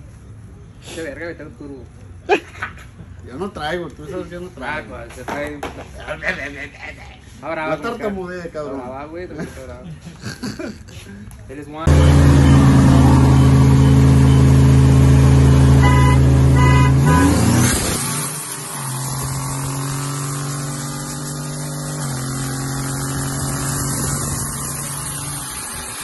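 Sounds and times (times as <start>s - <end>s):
short high-pitched tones: 11.9s - 17.6s
truck engines running hard: 11.9s - 26.0s.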